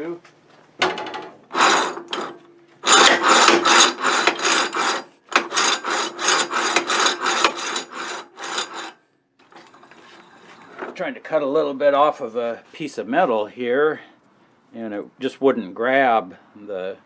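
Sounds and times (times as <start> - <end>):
metal vise jaw scraping: 1.5 - 10.9.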